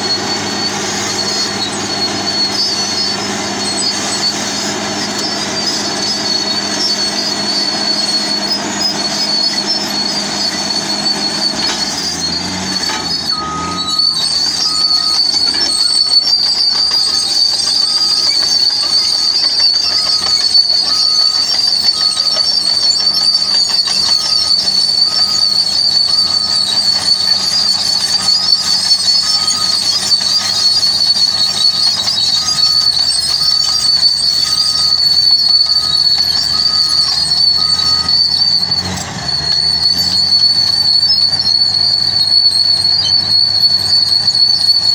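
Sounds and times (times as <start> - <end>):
bulldozer diesel engine: 0.0 - 44.9
high-pitched squeal: 0.0 - 44.9
backup alarm beeping: 8.6 - 30.2, 30.8 - 38.9.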